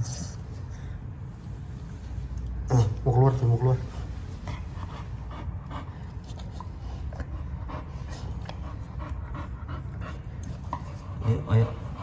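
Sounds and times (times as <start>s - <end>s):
dog panting: 3.4s - 12.0s.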